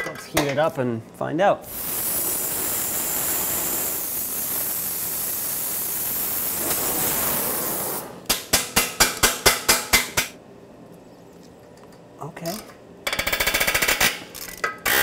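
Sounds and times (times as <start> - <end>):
torch flame hissing: 1.6 - 8.5.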